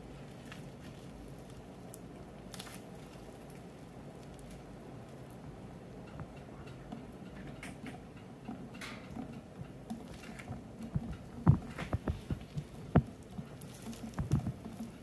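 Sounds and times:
cloth crackling and squishing: 0.0s - 5.3s, 10.0s - 15.0s
honey dripping sharp ticks: 0.4s - 15.0s.

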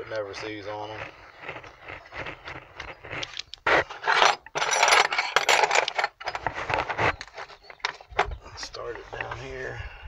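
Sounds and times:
metal hand tools clinking: 4.0s - 6.2s.

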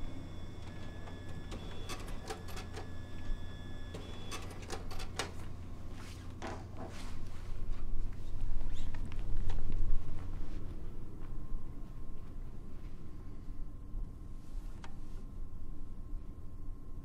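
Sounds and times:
paper feed whines: 0.0s - 6.4s
copier humming: 0.0s - 16.4s
copier clicks and ticks: 0.2s - 5.5s.

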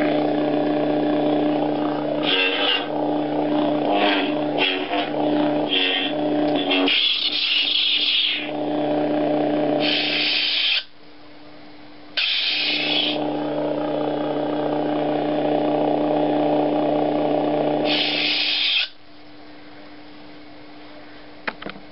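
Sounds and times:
lightsaber electric hum: 0.0s - 19.0s
lightsaber hissing swing: 2.2s - 2.9s, 3.9s - 5.1s, 5.7s - 8.5s, 9.8s - 10.9s, 12.2s - 13.2s, 17.8s - 19.0s
lightsaber ignition hiss: 5.7s - 8.5s, 9.8s - 10.9s, 12.2s - 13.2s, 17.8s - 19.0s.

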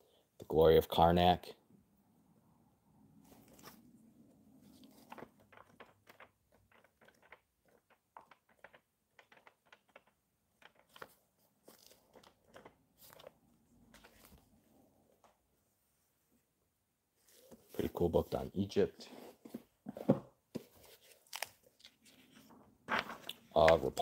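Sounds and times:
book pages flipping: 3.2s - 4.0s, 4.6s - 14.6s, 17.2s - 18.5s, 19.1s - 24.0s.

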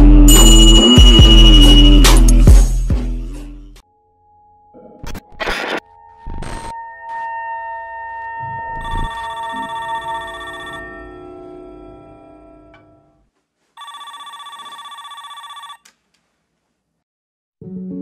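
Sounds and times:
phone ringtone trilling: 0.3s - 2.4s, 8.7s - 11.2s, 13.8s - 15.8s.

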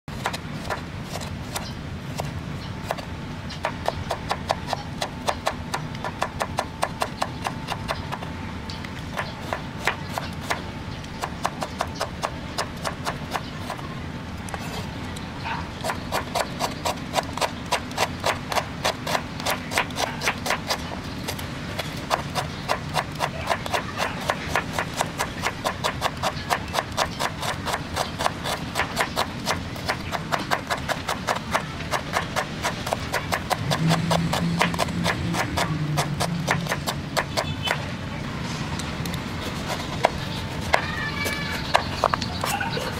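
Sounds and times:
knife chopping on wooden board: 15.8s - 21.4s, 22.1s - 37.8s.

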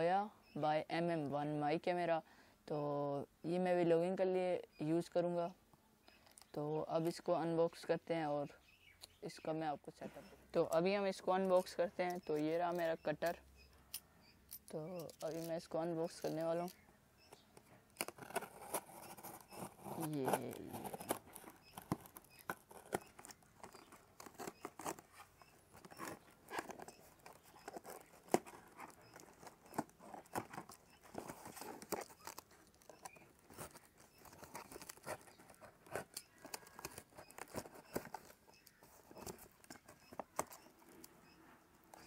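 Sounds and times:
box cutter slitting packing tape: 18.0s - 38.4s.

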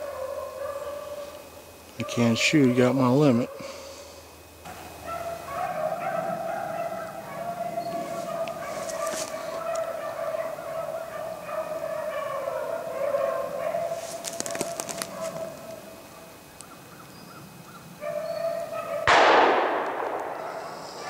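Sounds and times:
hounds baying: 0.0s - 21.0s
shotgun shot with echo: 19.1s - 20.8s.

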